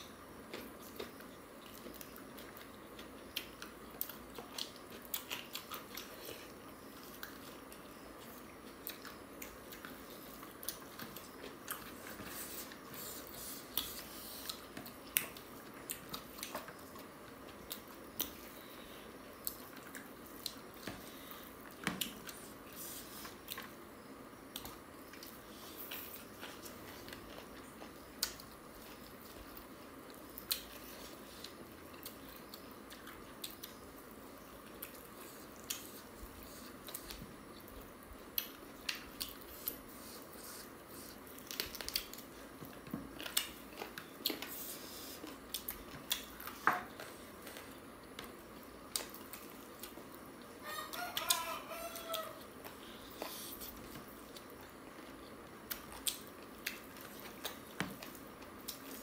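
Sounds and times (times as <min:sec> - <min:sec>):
chewing and lip smacks: 0:24.5 - 0:50.5, 0:52.0 - 0:59.0.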